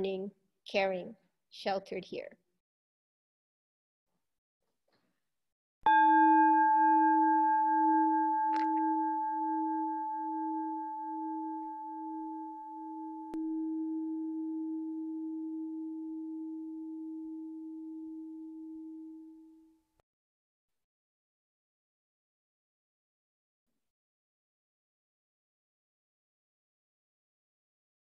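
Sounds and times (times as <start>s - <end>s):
singing bowl ringing: 5.9s - 19.7s.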